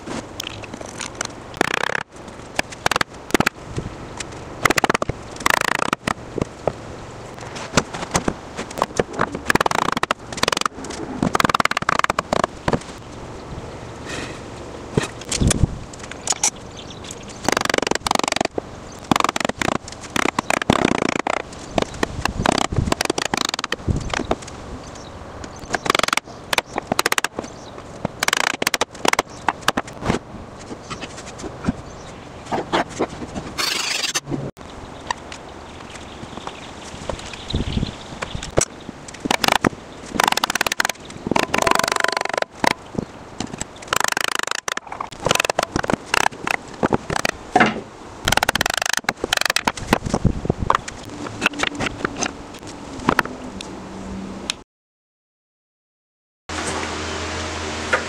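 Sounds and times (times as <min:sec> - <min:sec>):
wooden parts clattering: 0:07.4 - 0:13.0, 0:38.2 - 0:52.3.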